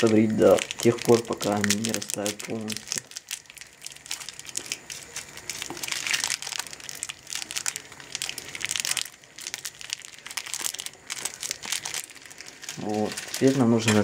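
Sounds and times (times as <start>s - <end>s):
candy wrappers crinkling and tearing: 0.0s - 14.0s.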